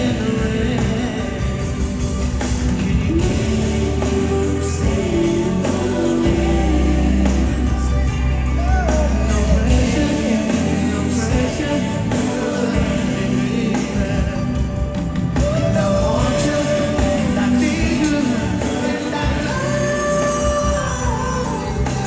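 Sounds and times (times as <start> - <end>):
band playing: 0.0 - 22.0
heavy bass: 0.0 - 22.0
male lead voice singing: 0.0 - 22.0
vocal group singing: 0.0 - 22.0.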